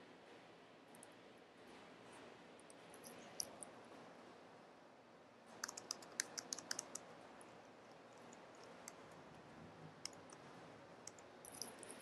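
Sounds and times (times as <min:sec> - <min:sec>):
typing on keyboard: 0:05.5 - 0:07.1, 0:08.1 - 0:09.3, 0:11.0 - 0:12.0.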